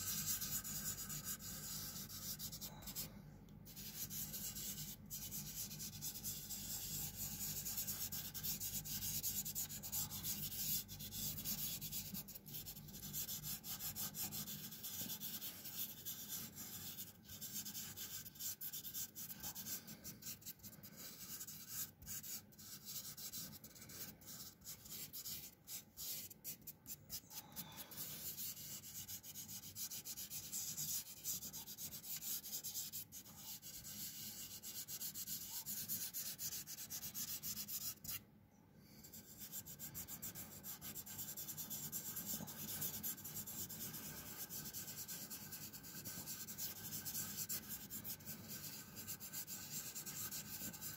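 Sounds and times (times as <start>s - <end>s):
fingers rubbing pastel on paper: 0.0s - 3.1s, 3.7s - 38.2s, 39.1s - 50.9s.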